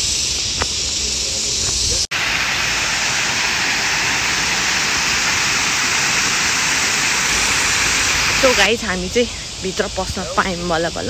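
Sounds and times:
waterfall splashing over rocks: 2.1s - 9.2s.

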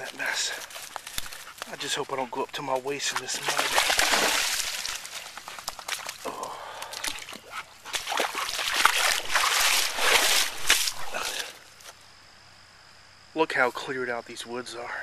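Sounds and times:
squelching steps on wet mud: 0.0s - 11.6s
dog splashing through puddle: 2.6s - 11.5s.

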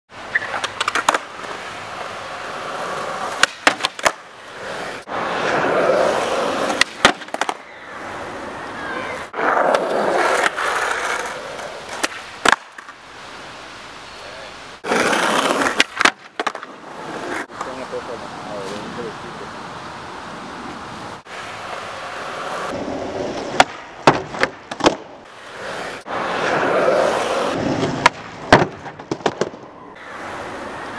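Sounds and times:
skateboard wheels rolling on asphalt: 0.1s - 30.9s
skateboard clacking on wood: 0.4s - 1.3s, 3.4s - 4.2s.

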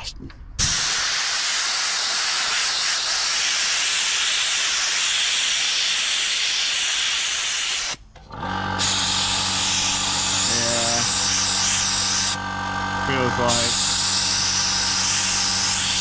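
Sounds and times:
sand-blasting gun hissing: 0.6s - 8.0s, 8.8s - 12.4s, 13.4s - 16.0s
steady mechanical hum: 8.0s - 16.0s.

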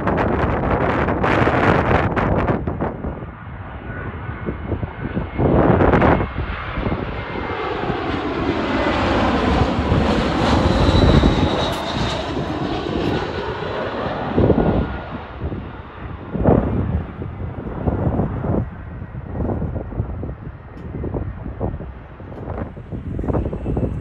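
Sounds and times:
jet airliner passing overhead: 0.0s - 24.0s
engine whine falling in pitch: 6.8s - 15.0s.

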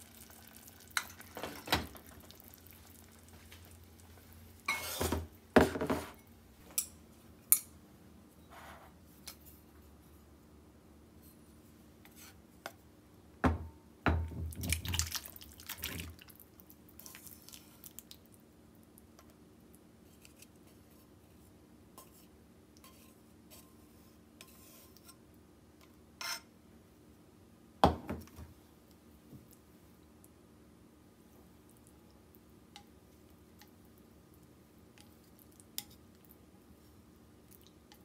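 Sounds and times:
soup splashing into bowl: 14.5s - 16.4s.

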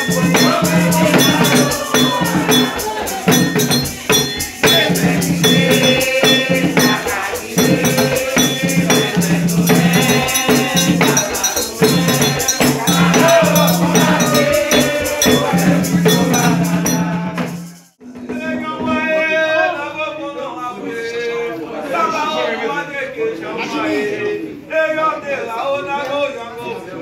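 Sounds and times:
bell: 0.0s - 18.0s
rattle: 0.0s - 18.0s
sharp percussion strokes: 0.0s - 19.1s
drums: 0.0s - 19.4s
group singing: 0.0s - 27.0s.

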